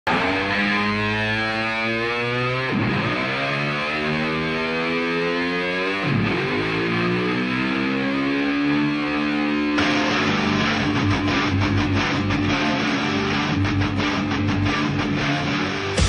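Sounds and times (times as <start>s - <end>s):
car engine accelerating hard: 0.2s - 12.9s.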